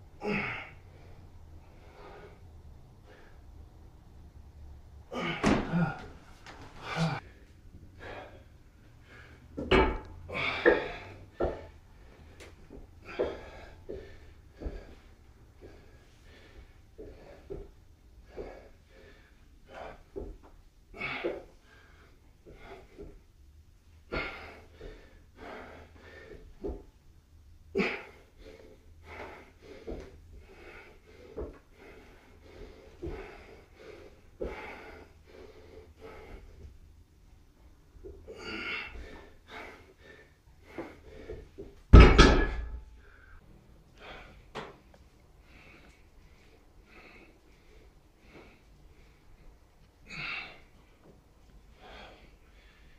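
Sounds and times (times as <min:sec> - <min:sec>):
man's forceful breaths: 0:00.2 - 0:23.4, 0:24.0 - 0:27.0, 0:27.8 - 0:52.9
heavy thump: 0:05.4 - 0:06.0, 0:41.9 - 0:42.8.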